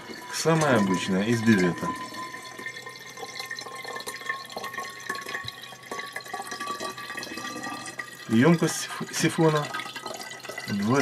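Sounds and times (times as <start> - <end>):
water pouring into metal siphon: 0.0 - 11.0.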